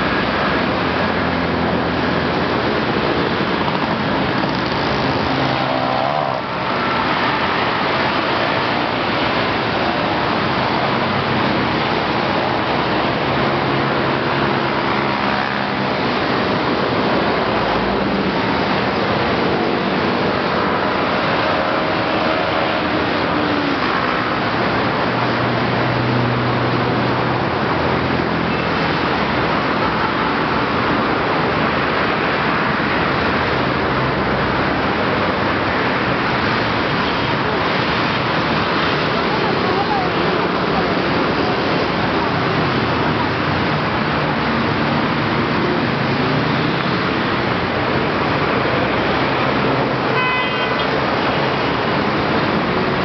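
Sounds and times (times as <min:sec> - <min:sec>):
passing vehicle engine hum: 0:00.0 - 0:50.2
fast-flowing water: 0:00.0 - 0:53.0
road traffic noise: 0:00.0 - 0:53.0
vehicle horn: 0:50.1 - 0:51.0.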